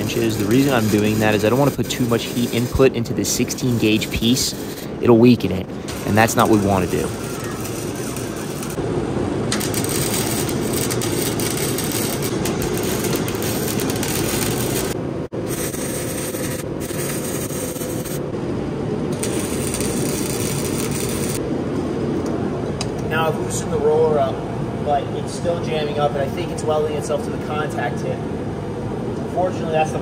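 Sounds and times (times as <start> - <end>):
welding arc crackling: 0.0 - 8.8, 9.5 - 18.2, 19.1 - 21.4.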